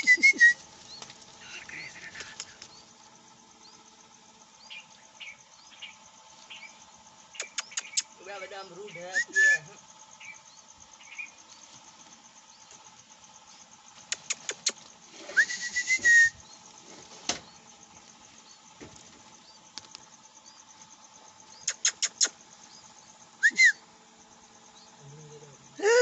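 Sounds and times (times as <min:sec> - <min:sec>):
nestlings cheeping: 0:00.0 - 0:26.0
sharp clicks: 0:07.4 - 0:08.1, 0:21.6 - 0:22.4
short arched whistle: 0:15.4 - 0:16.4, 0:23.4 - 0:23.8.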